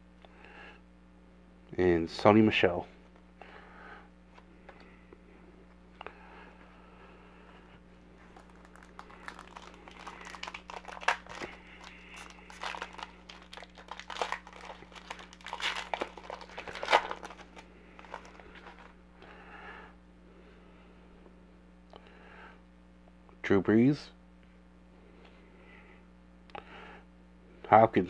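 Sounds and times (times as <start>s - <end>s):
foil wrapper crinkling and tearing: 8.2s - 18.9s.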